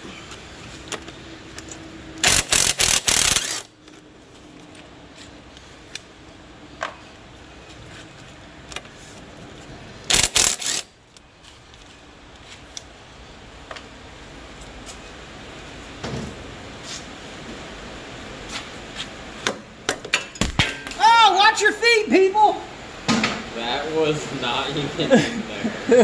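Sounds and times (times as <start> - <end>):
impact wrench hammering: 2.2 - 3.7, 10.1 - 10.9
small tool clicks: 2.2 - 3.7, 10.1 - 10.9.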